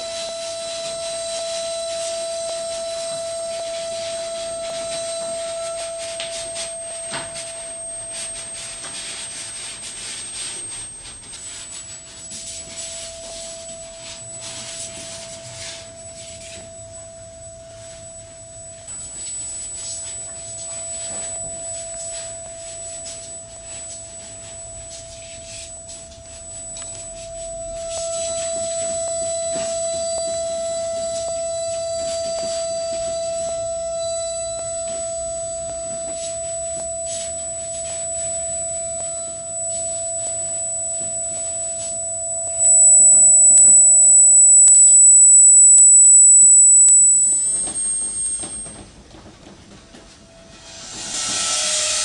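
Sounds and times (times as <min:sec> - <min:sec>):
faint high whistle: 0:00.0 - 0:48.8, 0:50.3 - 0:52.0
steady pure tone: 0:00.0 - 0:52.0
scraping and rubbing noises: 0:00.1 - 0:16.8, 0:18.8 - 0:42.7.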